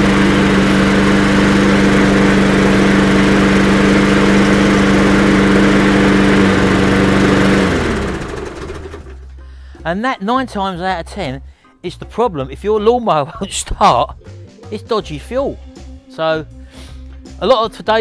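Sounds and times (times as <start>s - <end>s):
lawnmower engine running: 0.0s - 9.3s.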